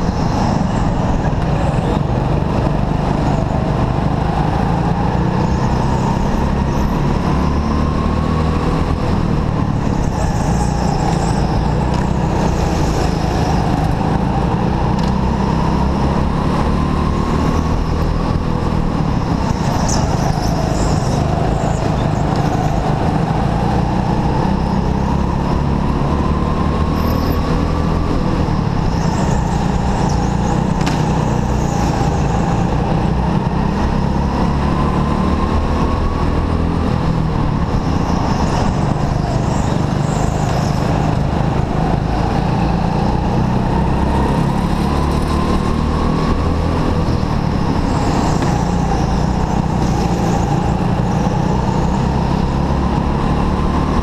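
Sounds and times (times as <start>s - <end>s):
heavy rumble: 0.0s - 26.3s
go-kart motor running hard: 0.0s - 54.0s.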